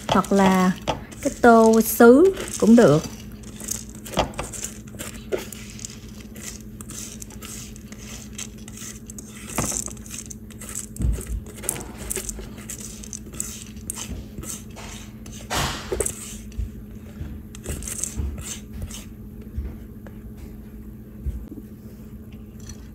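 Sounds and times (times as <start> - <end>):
grains scraping on glass: 0.0 - 16.5.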